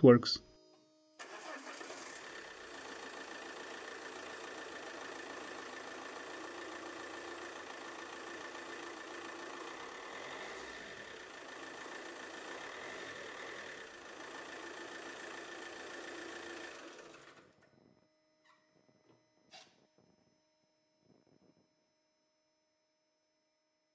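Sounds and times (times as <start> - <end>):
diesel engine idling: 1.2 - 17.6
thin steady whine: 17.0 - 23.9.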